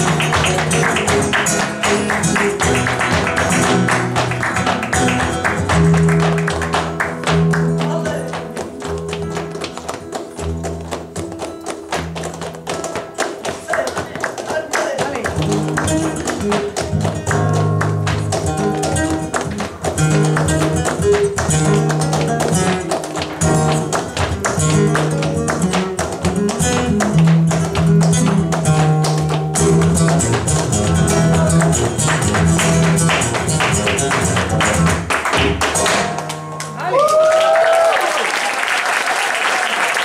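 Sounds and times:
flamenco guitar: 0:00.0 - 0:38.5
hand-clapping: 0:00.0 - 0:40.0
person shouting: 0:36.8 - 0:37.9.

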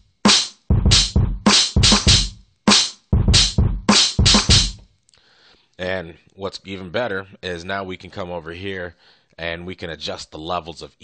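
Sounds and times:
programmed drum loop: 0:00.0 - 0:04.9.

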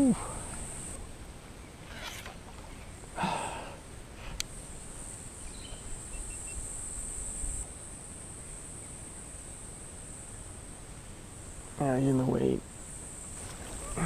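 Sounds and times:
insects droning: 0:00.0 - 0:14.0
rustling: 0:13.3 - 0:14.0.

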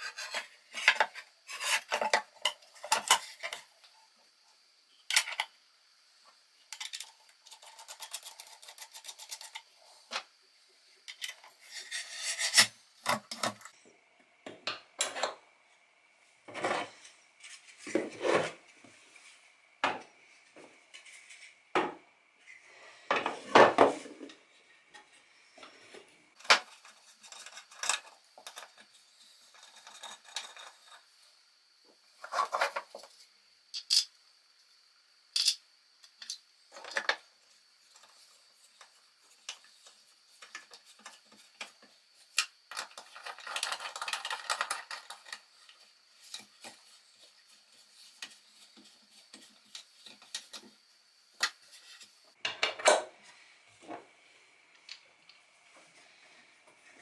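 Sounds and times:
plastic pieces clicking on metal: 0:35.4 - 0:35.6, 0:42.4 - 0:45.4.

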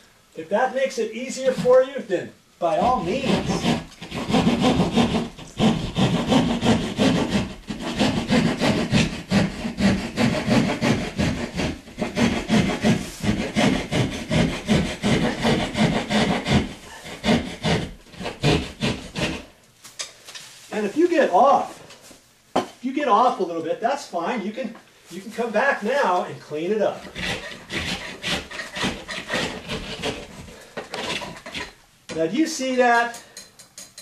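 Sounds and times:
hand saw rasping through drywall: 0:02.7 - 0:19.6, 0:27.0 - 0:31.8.

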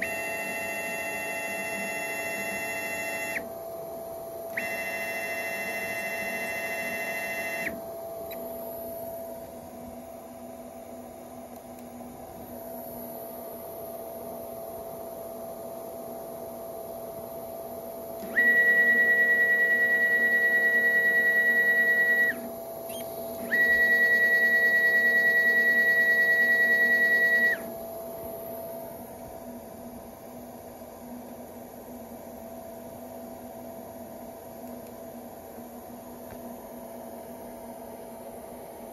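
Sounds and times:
faint steady hum: 0:00.0 - 0:38.9
stepper motors whining: 0:18.2 - 0:27.8.

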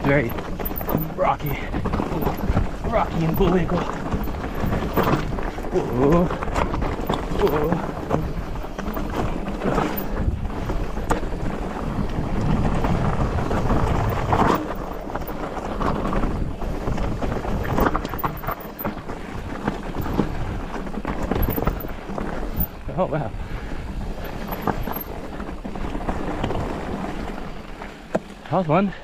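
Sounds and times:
bike knocking over rocks: 0:00.0 - 0:22.9
wind buffeting microphone: 0:00.0 - 0:28.4
bike tyres on rocky dirt trail: 0:00.0 - 0:29.0.

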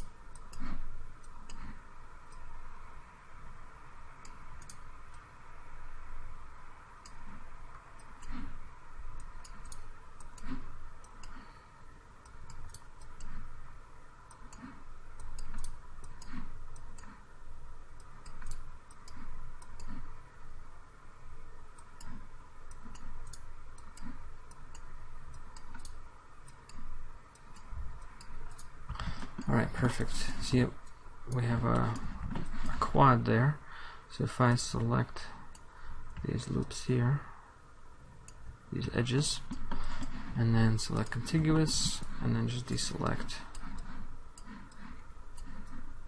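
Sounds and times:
computer mouse clicking: 0:00.0 - 0:02.6, 0:04.2 - 0:05.3, 0:07.0 - 0:11.6, 0:12.2 - 0:13.6, 0:14.3 - 0:17.2, 0:17.9 - 0:20.2, 0:21.7 - 0:33.0, 0:38.2 - 0:46.0
steady background hum: 0:00.0 - 0:46.0.

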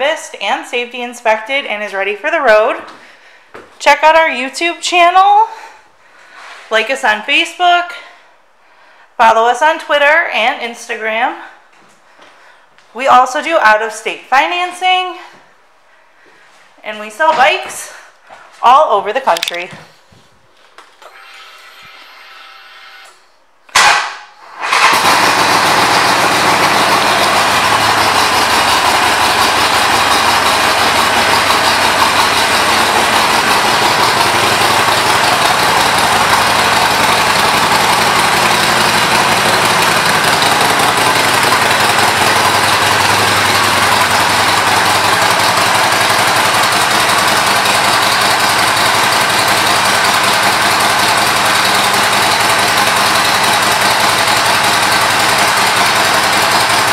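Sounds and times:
motorcycle engine starting and idling: 0:23.7 - 0:56.9.

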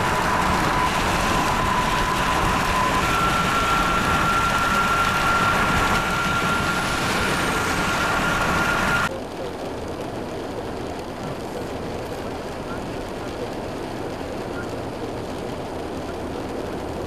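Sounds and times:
highway traffic passing: 0:00.0 - 0:09.1
wind rushing: 0:00.0 - 0:09.1.

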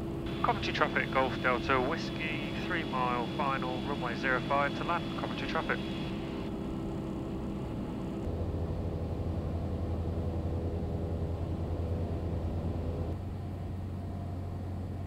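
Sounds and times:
propeller plane engine droning: 0:00.0 - 0:15.0.

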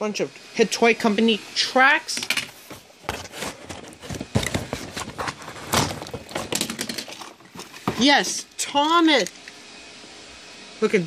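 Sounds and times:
plastic toy track pieces clattering: 0:05.7 - 0:07.4.

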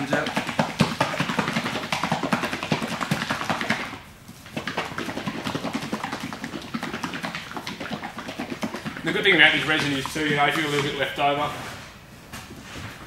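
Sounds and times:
liquid sloshing in shaken bottle: 0:00.0 - 0:11.2.

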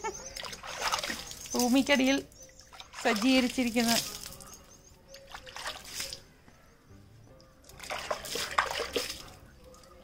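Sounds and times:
water splashing and sloshing: 0:00.0 - 0:06.3, 0:07.5 - 0:10.0
faint background music: 0:00.0 - 0:10.0.

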